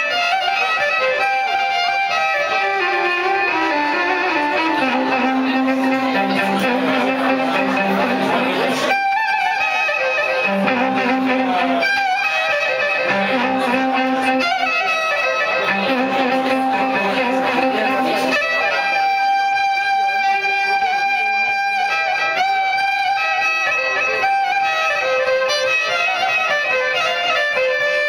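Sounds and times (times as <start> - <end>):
bowed violin melody: 0.0 - 28.0.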